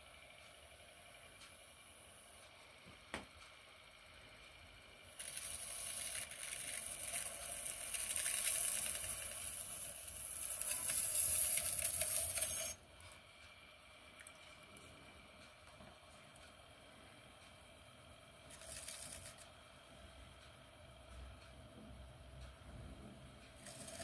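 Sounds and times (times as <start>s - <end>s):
tool scraping spinning clay: 5.1s - 13.2s, 18.4s - 19.6s, 23.5s - 24.0s.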